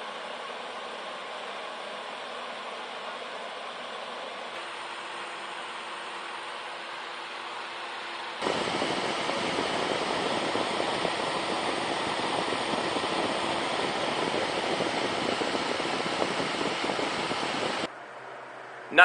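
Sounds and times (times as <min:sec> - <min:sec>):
fan blowing air: 0:00.0 - 0:19.0
faint steady hum: 0:04.4 - 0:19.0.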